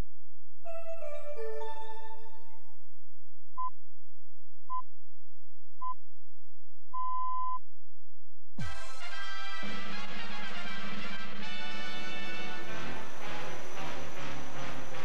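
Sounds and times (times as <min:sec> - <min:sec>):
jingle music: 0:00.7 - 0:02.6.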